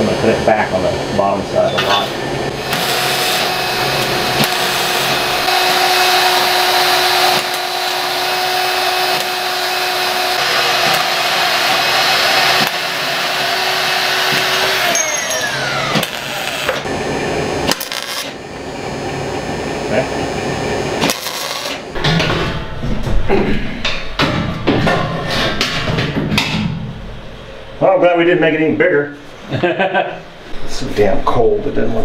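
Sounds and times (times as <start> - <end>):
angle grinder grinding metal: 1.8 - 16.9, 17.7 - 18.4, 21.0 - 22.0
grinder spinning down: 2.0 - 16.9, 17.7 - 18.4, 21.0 - 21.9.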